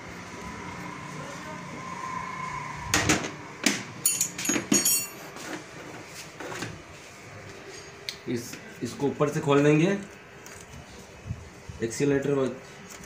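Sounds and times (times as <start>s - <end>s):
tools clinking on metal parts: 4.0s - 5.3s.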